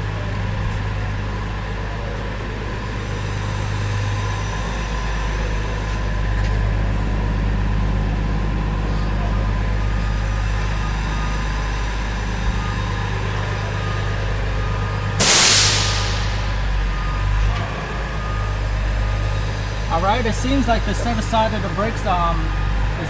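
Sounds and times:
truck engine idling: 0:00.0 - 0:23.0
air brake hiss: 0:15.2 - 0:17.1.

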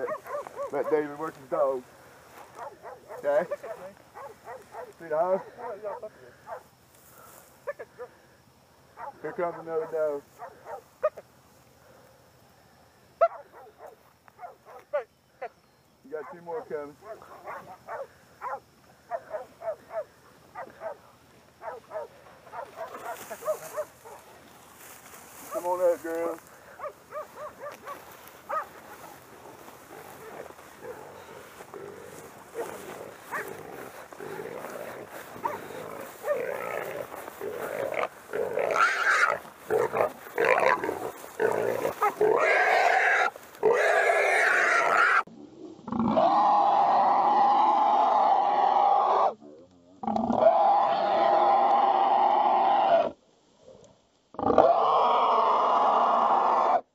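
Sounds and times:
dogs barking: 0:00.0 - 0:01.3, 0:02.4 - 0:06.7, 0:08.9 - 0:11.2, 0:13.2 - 0:15.5, 0:16.1 - 0:24.4, 0:25.4 - 0:25.9, 0:26.6 - 0:43.8
rustle: 0:00.0 - 0:16.3, 0:16.9 - 0:48.3, 0:49.3 - 0:56.8
hog squealing: 0:37.8 - 0:40.9, 0:41.5 - 0:45.3.

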